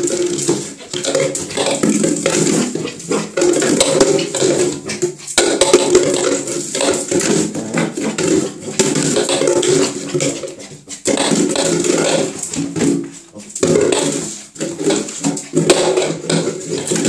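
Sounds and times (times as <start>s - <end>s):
plastic bottle clattering in bathtub: 0.0s - 17.0s.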